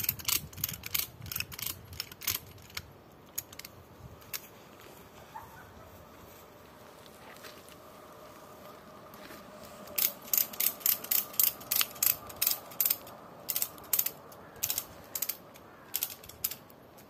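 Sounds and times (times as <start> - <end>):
ratchet buckle clicking: 0.0 - 4.5, 10.0 - 17.0.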